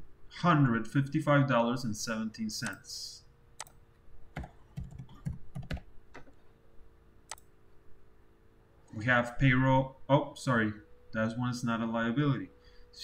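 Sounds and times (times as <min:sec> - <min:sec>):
faint low hum: 0:00.0 - 0:13.0
keyboard keystrokes: 0:04.4 - 0:06.4.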